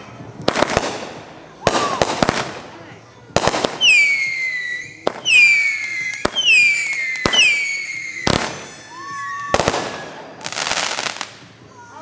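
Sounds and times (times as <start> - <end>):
firework bangs: 0.3 - 11.6
firework whistle dropping in pitch: 3.8 - 10.0.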